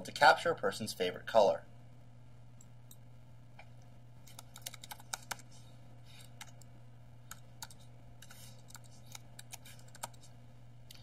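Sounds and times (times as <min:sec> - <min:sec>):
faint low hum: 0:00.0 - 0:11.0
keyboard keys tapping: 0:04.3 - 0:05.4.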